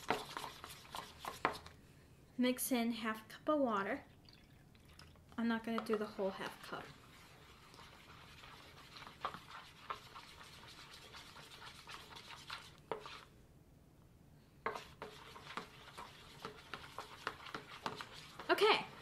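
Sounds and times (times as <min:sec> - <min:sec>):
fork scraping bowl: 0:00.0 - 0:01.7, 0:05.7 - 0:13.3, 0:14.7 - 0:19.0
fork stirring in plastic bowl: 0:00.0 - 0:01.8, 0:05.5 - 0:13.3, 0:14.6 - 0:19.0.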